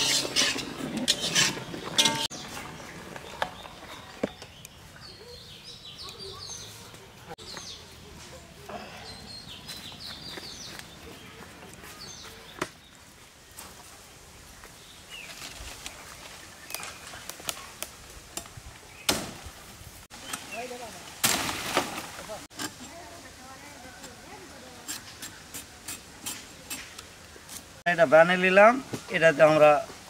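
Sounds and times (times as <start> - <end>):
small birds chirping: 1.1 - 13.8, 14.5 - 18.0, 20.1 - 21.0.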